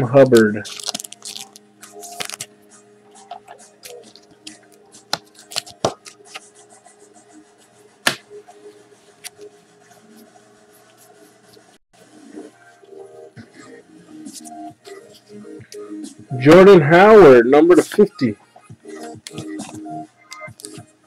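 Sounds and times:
cards flipped through: 0.2 - 2.5, 3.2 - 6.5, 19.3 - 20.8.

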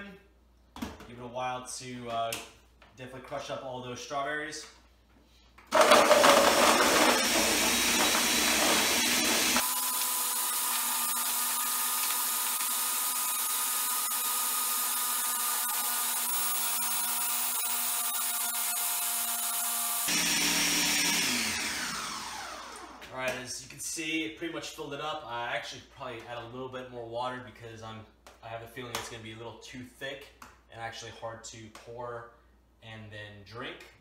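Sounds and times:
blender motor crushing ice: 5.7 - 23.1.

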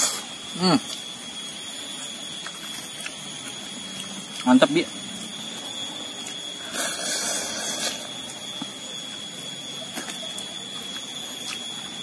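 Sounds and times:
high-pitched insect drone: 0.0 - 12.0
soft chewing ticks: 1.8 - 4.6.

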